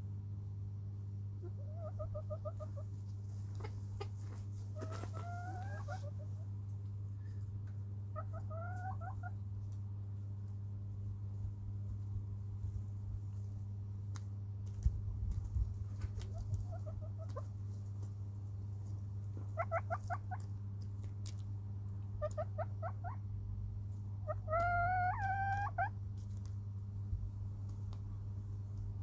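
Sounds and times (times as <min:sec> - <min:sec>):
steady low hum: 0:00.0 - 0:29.0
hens clucking softly: 0:01.4 - 0:09.4, 0:16.0 - 0:17.8, 0:18.9 - 0:20.6, 0:22.0 - 0:23.3, 0:24.2 - 0:26.4.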